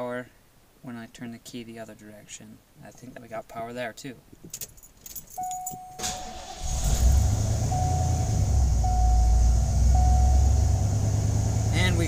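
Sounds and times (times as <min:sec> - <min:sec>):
single-tone chime beeping: 0:05.4 - 0:06.0, 0:07.7 - 0:10.6
car engine idling: 0:06.0 - 0:12.0.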